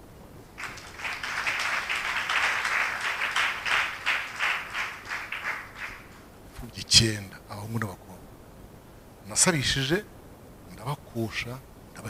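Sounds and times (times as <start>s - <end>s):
audience applauding: 0.6s - 6.3s.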